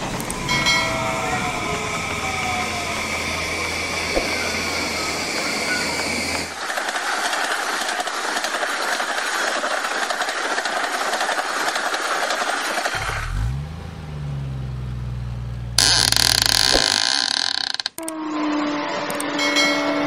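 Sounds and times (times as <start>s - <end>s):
low engine sound rising in pitch: 0.0s - 6.6s, 13.0s - 17.2s
railroad crossing warning bell: 0.3s - 6.2s, 19.2s - 20.0s.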